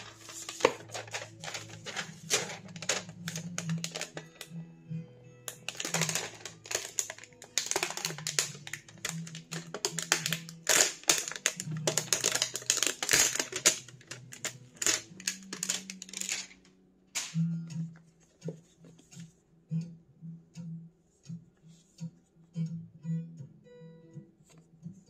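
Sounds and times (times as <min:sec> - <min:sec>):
plastic wrapping crinkling: 0:00.0 - 0:04.4, 0:05.5 - 0:16.6.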